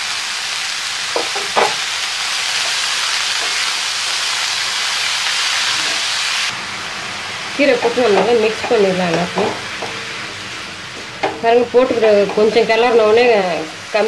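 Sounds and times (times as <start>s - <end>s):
leaves sizzling in hot oil: 0.0s - 14.0s
wooden spatula stirring: 7.6s - 13.5s
short knocks: 7.8s - 10.1s.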